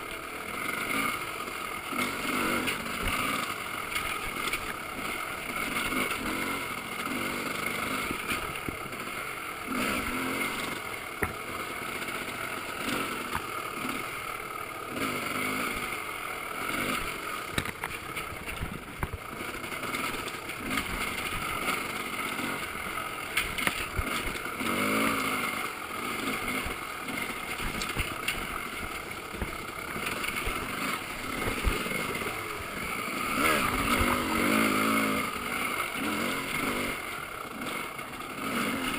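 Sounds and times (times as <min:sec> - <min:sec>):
dirt bike engine revving: 0:00.0 - 0:38.9
bike knocking and clattering: 0:10.0 - 0:13.8, 0:16.7 - 0:35.0.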